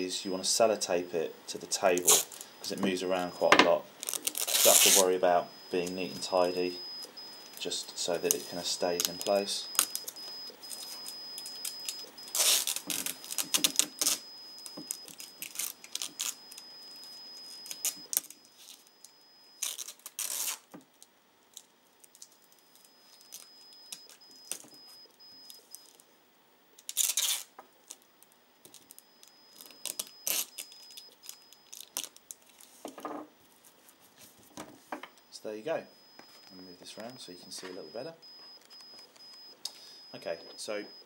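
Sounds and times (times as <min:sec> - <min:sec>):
sticky tape ripping off roll: 0:02.0 - 0:02.4, 0:04.0 - 0:05.1, 0:10.7 - 0:16.6, 0:19.6 - 0:20.7, 0:26.8 - 0:28.0, 0:29.6 - 0:32.7
paper rustling: 0:04.0 - 0:05.1.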